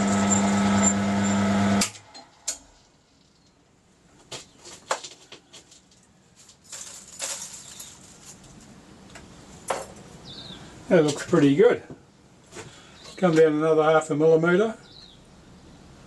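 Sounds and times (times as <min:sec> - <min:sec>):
mill-drill motor running: 0:00.0 - 0:02.0
brush sweeping metal chips: 0:06.4 - 0:08.7.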